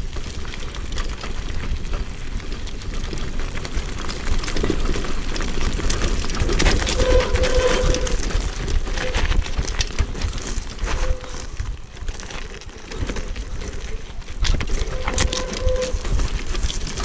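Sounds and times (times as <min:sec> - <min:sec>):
tyres crunching over stones: 0:00.0 - 0:17.0
wheelchair frame rattling: 0:03.8 - 0:17.0
low rumble: 0:06.2 - 0:17.0.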